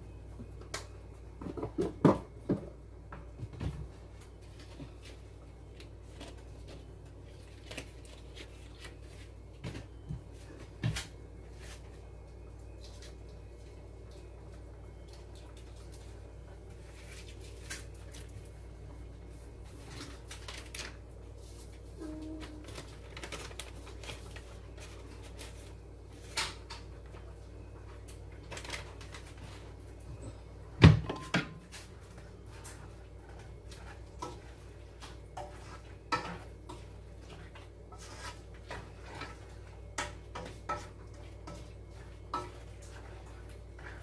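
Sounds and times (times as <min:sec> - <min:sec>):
low steady hum: 0:00.0 - 0:44.0
spatula tapping and scraping pan: 0:33.7 - 0:44.0.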